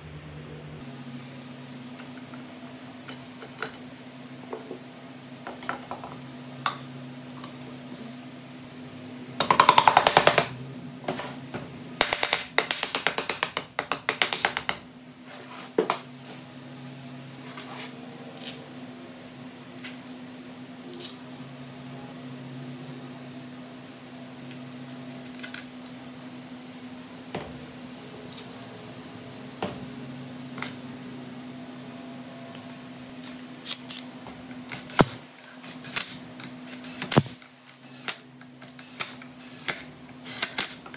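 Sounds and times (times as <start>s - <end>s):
steady low hum: 0.0s - 40.9s
ratchet wrench clicking: 34.7s - 40.8s.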